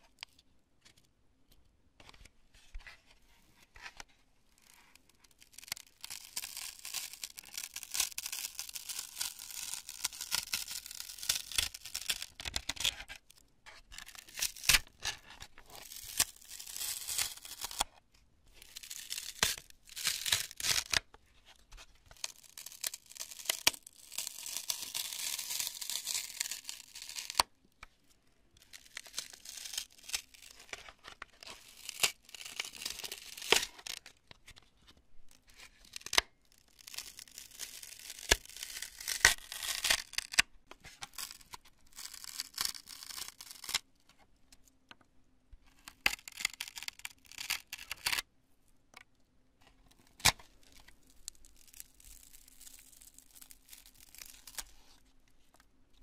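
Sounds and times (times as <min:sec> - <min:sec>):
foam crunching and tearing: 0:04.6 - 0:13.2, 0:13.8 - 0:17.9, 0:18.5 - 0:21.1, 0:22.1 - 0:27.5, 0:28.6 - 0:34.2, 0:35.8 - 0:43.8, 0:45.8 - 0:48.2, 0:50.0 - 0:55.0.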